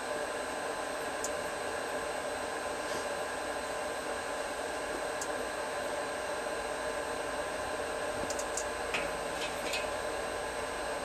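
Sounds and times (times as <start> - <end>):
fan-like hiss: 0.0 - 11.0.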